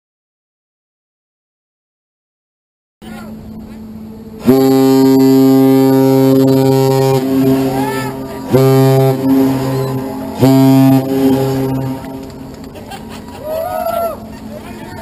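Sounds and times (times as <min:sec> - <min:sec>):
deep ship whistle blasts: 0:04.4 - 0:12.6.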